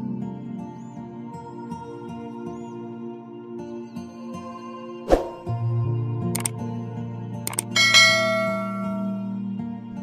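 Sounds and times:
background music: 0.0 - 10.0
mouse clicks: 7.5 - 7.7
bell-like notification chime: 7.8 - 9.3.

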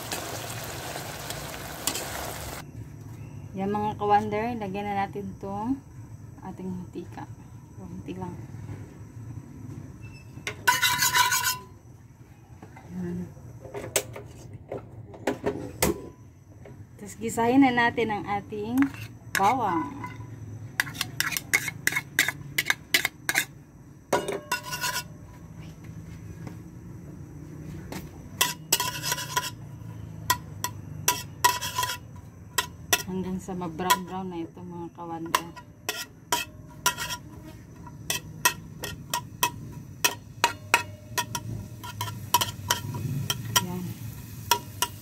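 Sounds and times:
garlic sizzling in oil: 0.0 - 2.6, 28.4 - 34.2, 35.2 - 45.0
metal spatula scraping frying pan: 10.6 - 11.7, 18.8 - 20.2, 20.8 - 23.6, 24.5 - 25.2, 28.4 - 33.2, 35.2 - 45.0.

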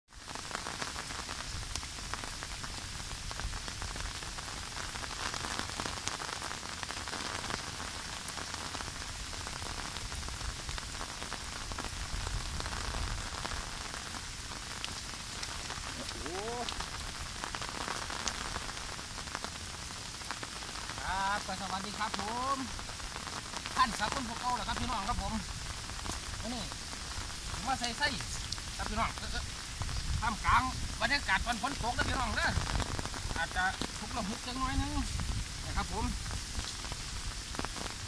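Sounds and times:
heavy rain pattering: 0.1 - 38.0
rain ticking on umbrella: 0.1 - 38.0
wind on microphone: 29.4 - 33.4, 34.6 - 37.5.

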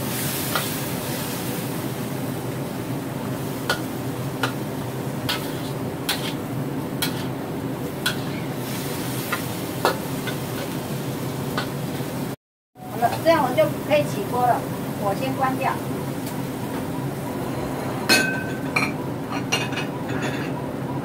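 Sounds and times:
food sizzling: 0.0 - 17.4
metal spatula scraping a wok: 5.3 - 7.4, 8.0 - 10.8.

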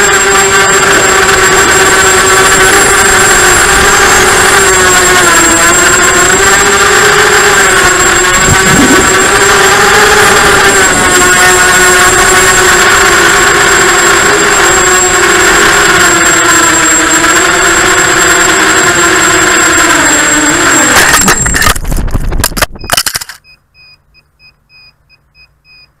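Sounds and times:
quadcopter motors whining: 0.0 - 25.9
faint rapid short beeps: 22.7 - 26.0.

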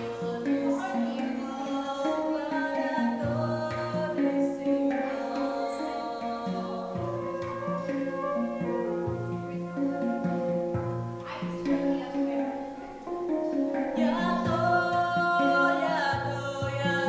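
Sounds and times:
woman singing: 0.0 - 10.5, 11.2 - 17.0
handpan notes: 0.0 - 17.0
flute: 5.6 - 13.0.

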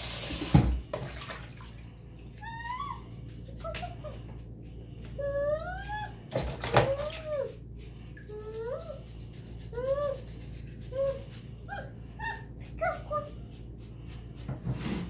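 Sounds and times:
pet animal whining: 5.1 - 6.3, 6.9 - 13.6.

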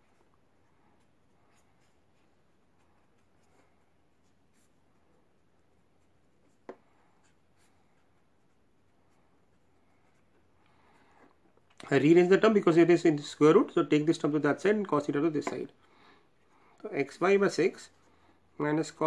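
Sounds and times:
pen scratching on paper: 0.0 - 11.3.

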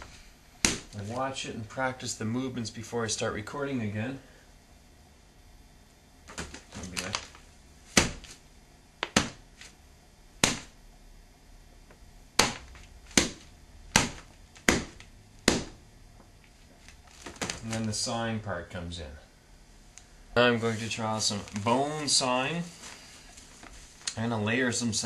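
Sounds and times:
knife striking wet padding: 0.6 - 1.0, 7.9 - 8.4, 9.0 - 9.5, 10.4 - 10.8, 12.4 - 15.8.

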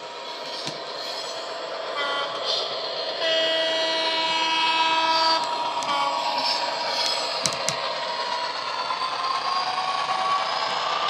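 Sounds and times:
model train diesel engine sound: 0.0 - 11.0
train horn blast: 2.0 - 2.6, 3.2 - 6.6.

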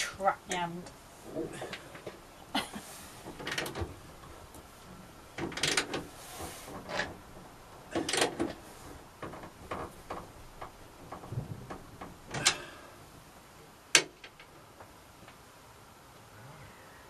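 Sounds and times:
spanner ratcheting: 5.4 - 6.1.

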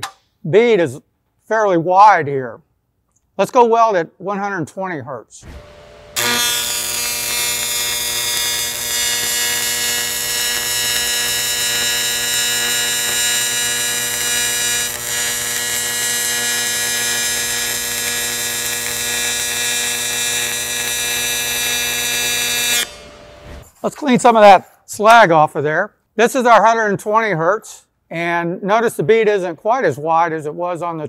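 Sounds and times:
welding arc buzzing: 5.4 - 23.6.

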